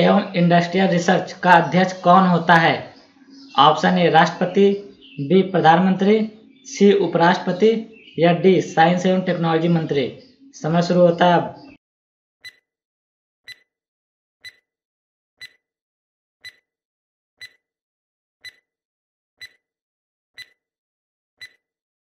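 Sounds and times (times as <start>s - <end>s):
clock-like timer ticks: 12.4s - 12.7s, 13.5s - 13.7s, 14.4s - 14.7s, 15.4s - 15.6s, 16.4s - 16.7s, 17.4s - 17.6s, 18.4s - 18.7s, 19.4s - 19.6s, 20.4s - 20.6s, 21.4s - 21.7s.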